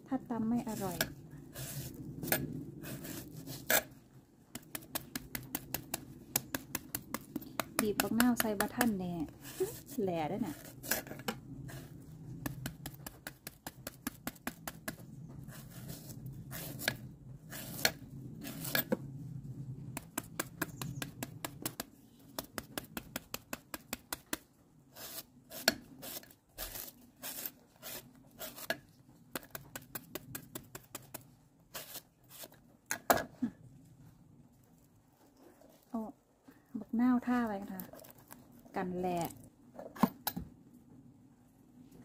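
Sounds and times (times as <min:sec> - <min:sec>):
knife chopping banana: 0:04.6 - 0:09.0, 0:20.0 - 0:24.4.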